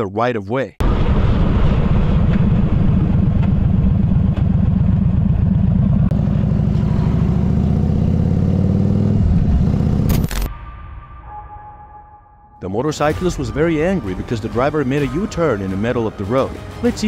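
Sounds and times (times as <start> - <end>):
motorcycle engine running: 2.3 - 10.3.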